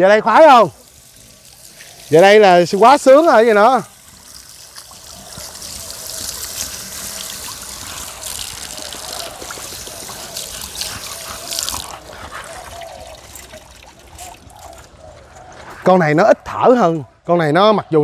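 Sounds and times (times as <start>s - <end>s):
dog panting heavily: 9.6s - 13.4s.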